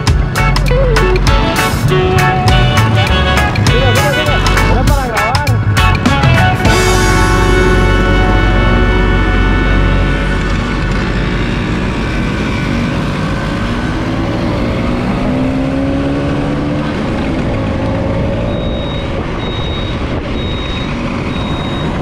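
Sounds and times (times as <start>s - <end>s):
road and wind noise: 0.0s - 22.0s
scooter engine running: 0.1s - 5.2s, 5.8s - 22.0s
short high beeps: 18.4s - 22.0s.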